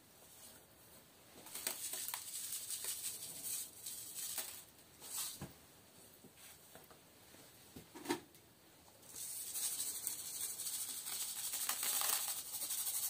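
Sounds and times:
curing mix sprinkling patter: 1.3s - 5.4s, 8.9s - 13.0s.

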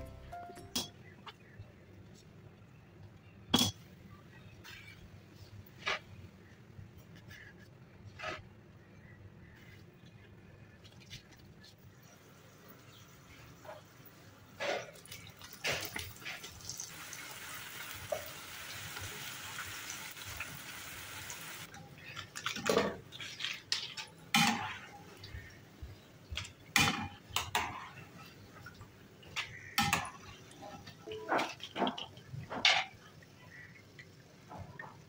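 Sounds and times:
pastry sizzling in hot oil: 15.0s - 21.7s.

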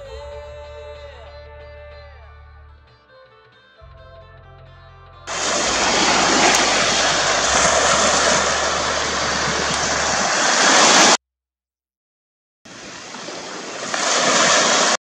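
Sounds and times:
sea waves: 5.3s - 11.2s, 12.7s - 15.0s
wind on microphone: 5.3s - 11.2s.

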